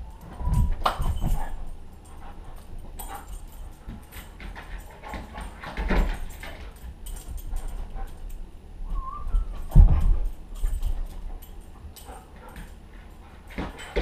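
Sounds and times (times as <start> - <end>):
light clicks and rustles: 0.1 - 8.5, 9.3 - 14.0.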